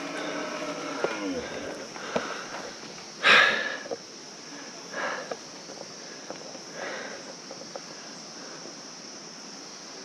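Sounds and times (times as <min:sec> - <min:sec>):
high insect buzz: 0:00.0 - 0:10.0
man breathing out hard: 0:01.4 - 0:04.0.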